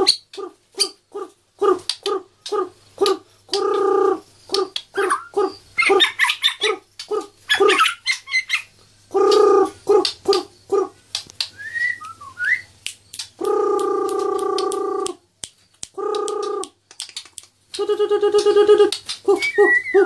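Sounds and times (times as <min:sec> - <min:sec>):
bird singing and chirping: 0:00.0 - 0:15.1, 0:16.0 - 0:20.0
bird rising whistles: 0:11.5 - 0:12.7.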